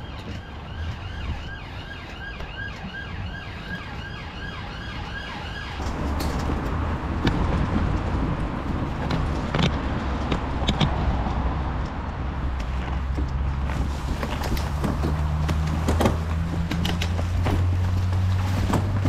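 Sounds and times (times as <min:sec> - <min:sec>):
siren yelping: 0:00.0 - 0:05.9
road traffic rumble: 0:00.0 - 0:19.0.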